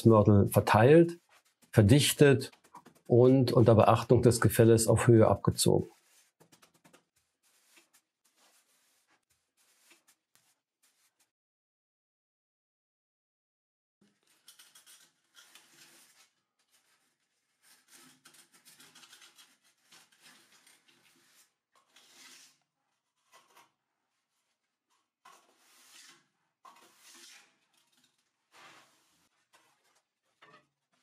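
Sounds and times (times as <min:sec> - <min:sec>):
trowel scraping mortar: 0:05.8 - 0:11.3, 0:14.1 - 0:24.6, 0:25.2 - 0:31.0.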